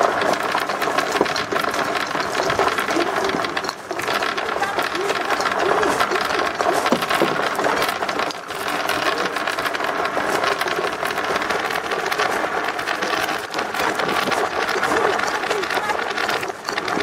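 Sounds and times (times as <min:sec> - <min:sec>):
marbles clattering down wooden board: 0:00.0 - 0:17.0.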